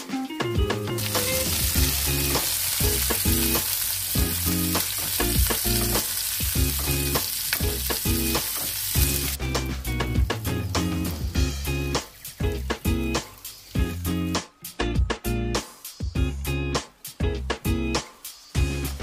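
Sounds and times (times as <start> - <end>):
food sizzling in hot oil: 1.0 - 14.4.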